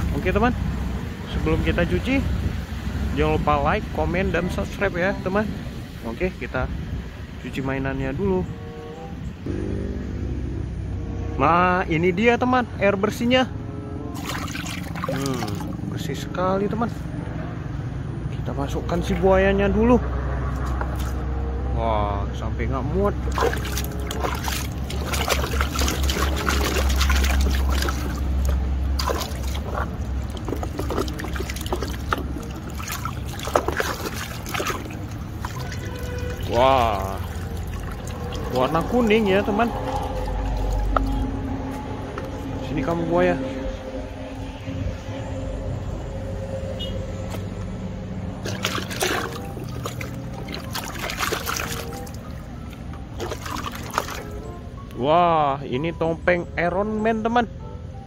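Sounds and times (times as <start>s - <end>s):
faint background music: 7.4s - 58.0s
water splashing in plastic basin: 14.2s - 15.8s, 20.6s - 21.2s, 23.2s - 41.3s, 48.4s - 54.4s
low rumble: 22.8s - 48.7s.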